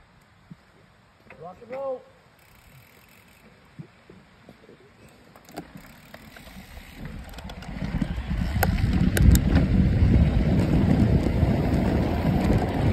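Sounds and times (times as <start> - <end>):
bike clicks and crunches: 1.2 - 3.6, 4.4 - 12.9
tyres rolling over dirt: 5.6 - 12.9
wind on microphone: 6.6 - 12.9.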